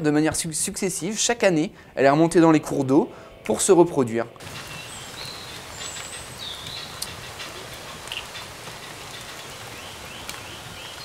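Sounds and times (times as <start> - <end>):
steady background hiss: 0.0 - 11.0
faint birds chirping: 4.4 - 11.0.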